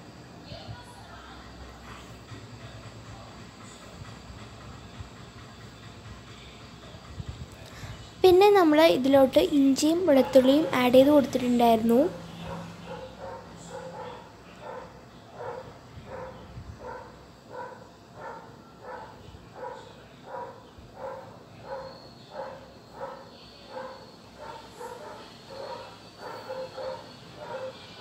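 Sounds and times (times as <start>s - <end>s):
dog barking: 12.1s - 28.0s.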